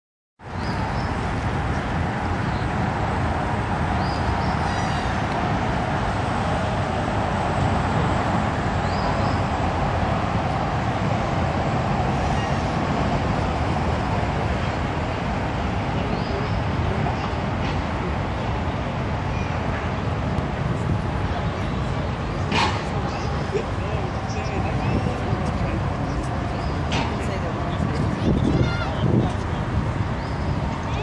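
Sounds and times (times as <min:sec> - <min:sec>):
road traffic: 0:00.4 - 0:31.0
wind on microphone: 0:00.4 - 0:31.0.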